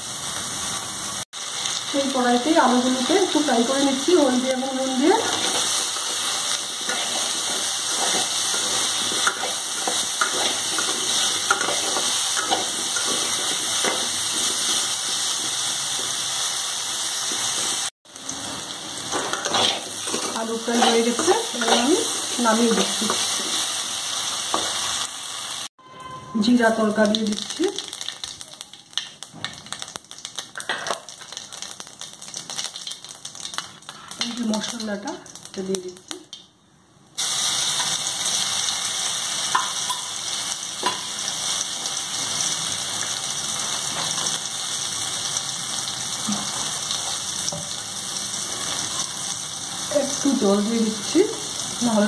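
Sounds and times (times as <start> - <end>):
potatoes sizzling in oil: 0.0 - 25.7, 26.4 - 36.4, 37.2 - 52.0
metal spatula scraping pan: 5.1 - 15.5, 19.0 - 23.6
faint frying hiss: 26.8 - 52.0.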